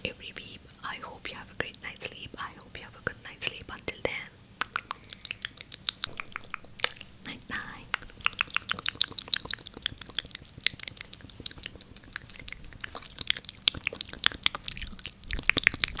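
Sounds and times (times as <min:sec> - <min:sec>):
wet mouth clicks: 0:00.0 - 0:16.0.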